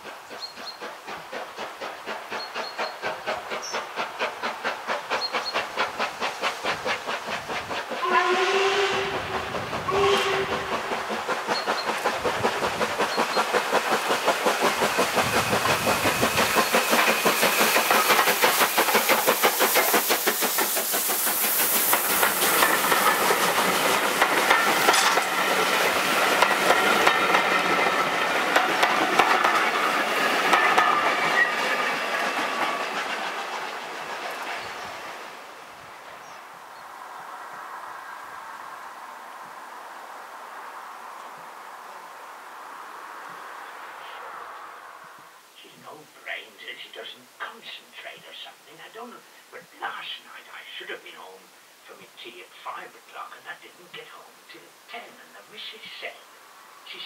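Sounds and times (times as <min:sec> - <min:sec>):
steam locomotive chuffing: 0:00.0 - 0:35.6
steam whistle: 0:08.0 - 0:10.8
wheels clattering over rail joints: 0:21.9 - 0:34.7.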